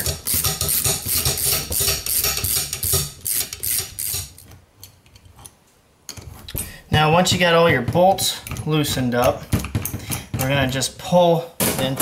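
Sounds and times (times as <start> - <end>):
ratchet wrench clicking: 0.0 - 4.4.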